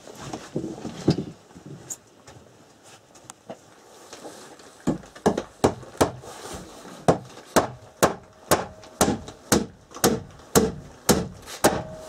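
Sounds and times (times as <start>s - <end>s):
hammer driving nails into wood: 4.8s - 6.2s, 7.1s - 12.0s.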